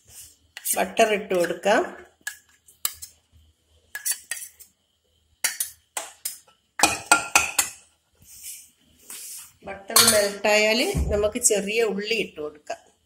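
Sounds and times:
spoon knocking on glass: 6.8s - 7.8s.

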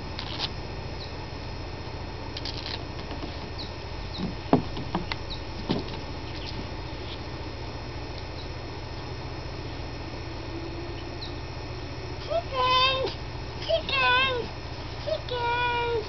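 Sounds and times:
dull thumps: 3.0s - 6.7s
feet knocking on wooden steps: 4.2s - 6.0s.

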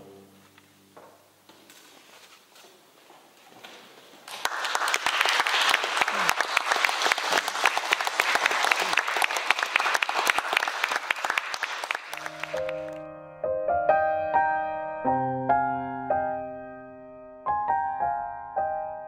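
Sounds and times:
music with sustained notes: 0.0s - 1.0s, 12.2s - 19.0s
audience applause: 4.2s - 13.0s.

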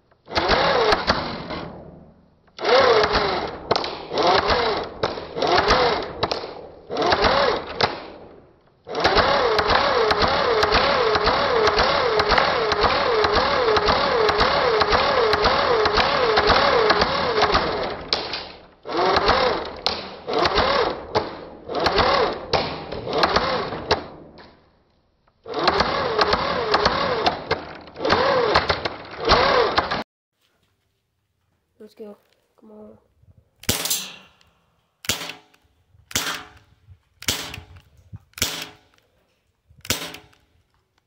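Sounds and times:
airsoft gun firing bursts: 2.6s - 8.2s, 8.9s - 24.1s, 33.6s - 34.2s, 35.0s - 39.0s, 39.8s - 40.6s.

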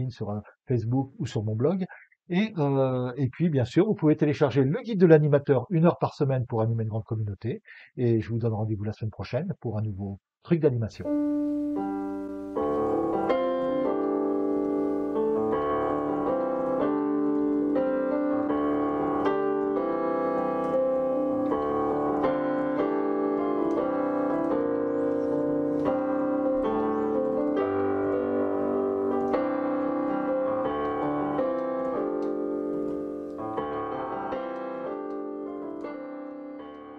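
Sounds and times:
slow piano chords: 11.0s - 36.9s.

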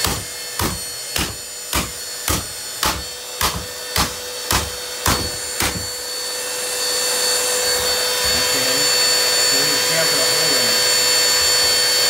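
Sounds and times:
sharp knocks: 0.0s - 5.9s
vacuum motor whining: 0.0s - 12.0s.

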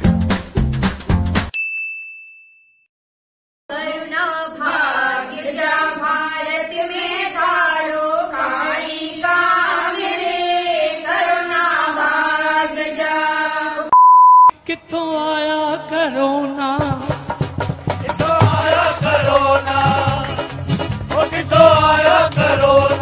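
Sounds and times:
ringing ding: 1.5s - 2.9s
person singing devotional chant: 3.7s - 13.9s, 14.6s - 17.2s, 18.0s - 20.4s, 21.2s - 23.0s.

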